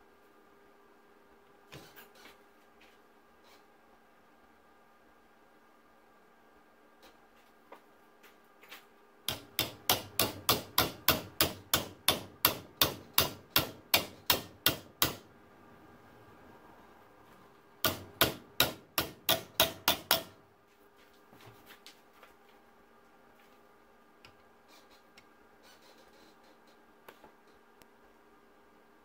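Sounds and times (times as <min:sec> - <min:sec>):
hammer striking sheet steel: 0:09.3 - 0:15.2, 0:17.8 - 0:20.4.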